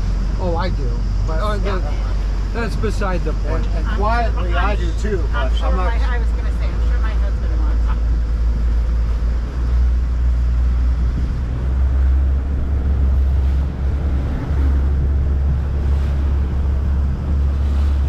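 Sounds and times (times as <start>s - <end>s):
motorboat engine rumble: 0.0s - 18.0s
water rushing past hull: 0.0s - 18.0s
wind on microphone: 6.2s - 18.0s.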